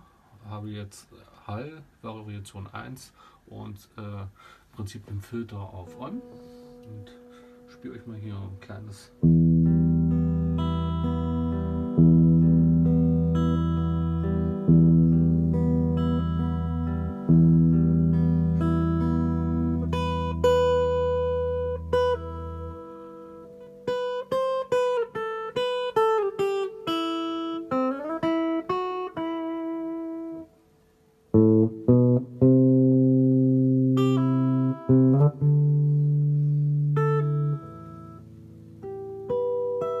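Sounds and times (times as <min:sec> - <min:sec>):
electric guitar with reverb: 0:08.5 - 0:30.5.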